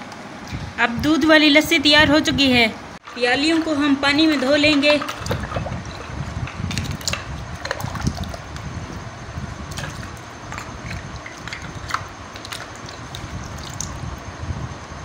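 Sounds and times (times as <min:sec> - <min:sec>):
clay cups clinking: 0:03.0 - 0:08.0
water splashing in a pot: 0:03.0 - 0:14.2.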